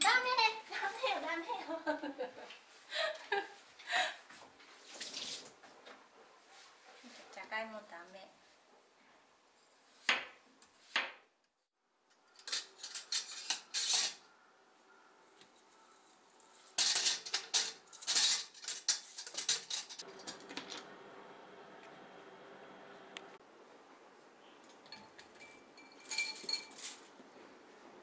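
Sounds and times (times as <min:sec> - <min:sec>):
utensils clinking against dishes: 0:12.3 - 0:14.3, 0:15.8 - 0:20.5, 0:24.6 - 0:27.1.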